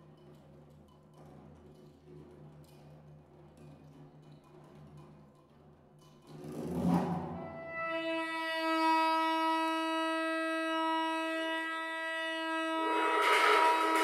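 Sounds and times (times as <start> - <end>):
saxophone long steady note: 7.4 - 14.0.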